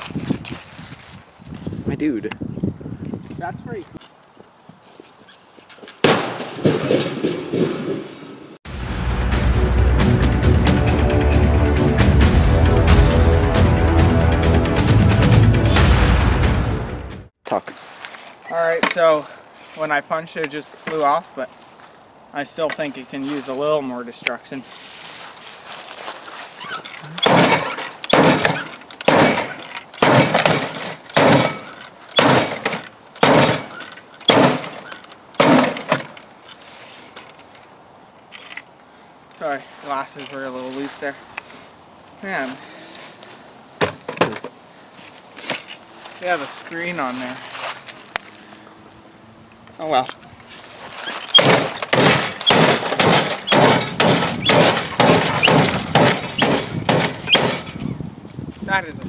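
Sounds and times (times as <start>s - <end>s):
heavy blows on glass: 27.2s - 36.0s, 51.3s - 57.8s
punching arm hammering glass door: 27.2s - 36.1s, 51.3s - 57.7s.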